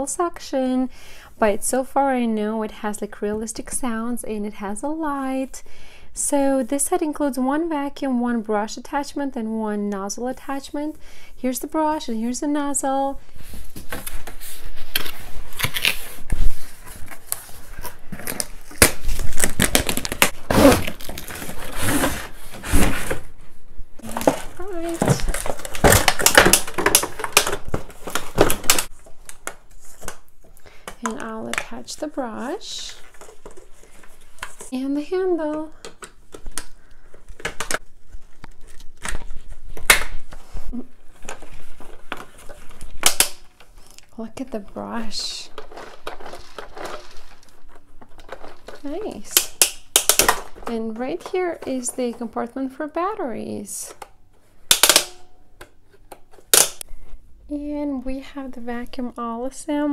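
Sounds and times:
cardboard box rustling and scraping: 20.4s - 23.3s
plastic toy parts clicking and knocking: 45.6s - 52.2s, 54.7s - 56.8s.

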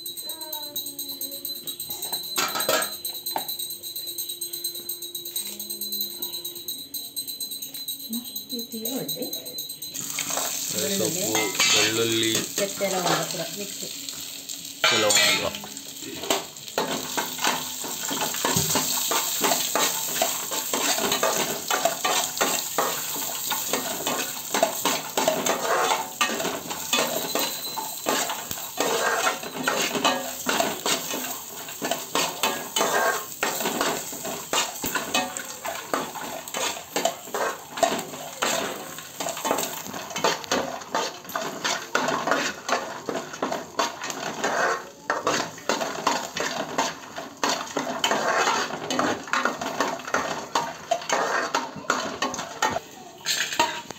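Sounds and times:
food sizzling: 0.0s - 3.5s, 8.1s - 53.9s
spoon scraping metal pan: 2.4s - 3.5s, 10.0s - 13.4s, 14.8s - 15.7s, 16.3s - 53.9s.

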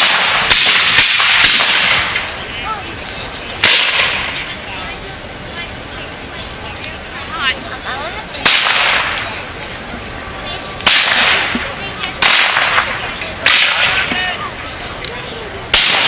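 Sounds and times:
musket shots: 0.0s - 2.3s, 3.6s - 4.4s, 8.4s - 9.3s, 10.8s - 11.6s, 12.2s - 14.2s, 15.7s - 16.0s.

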